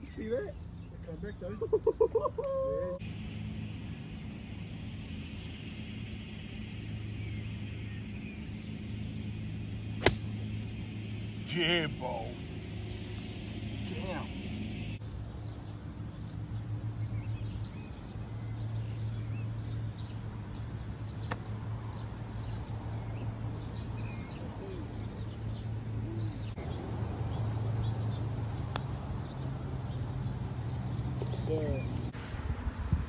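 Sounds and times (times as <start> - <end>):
low outdoor hum: 0.0 - 33.0
small birds chirping: 0.0 - 33.0
golf club striking ball: 10.0 - 10.5, 21.2 - 21.5.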